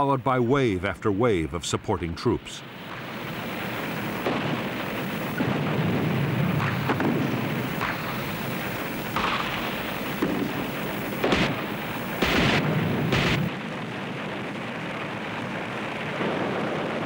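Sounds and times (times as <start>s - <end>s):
sharp blasts: 2.6s - 13.5s
steady rumble: 2.6s - 16.0s.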